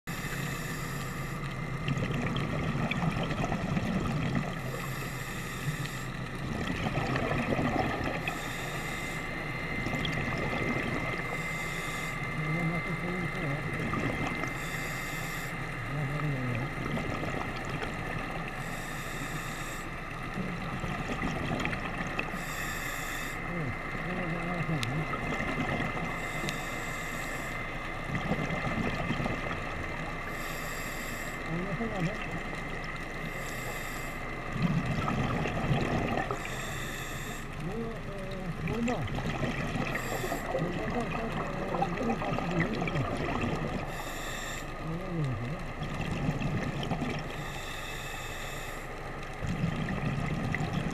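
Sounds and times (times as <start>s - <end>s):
low underwater rumble: 0.1s - 18.8s, 23.4s - 30.5s, 31.4s - 36.9s, 37.5s - 44.1s, 44.8s - 47.6s, 49.0s - 50.9s
regulator inhale hiss: 14.5s - 15.6s, 18.5s - 19.9s, 22.3s - 23.4s, 26.2s - 27.6s, 30.2s - 31.5s, 33.2s - 34.5s, 36.3s - 37.6s, 43.9s - 44.8s, 47.4s - 49.0s.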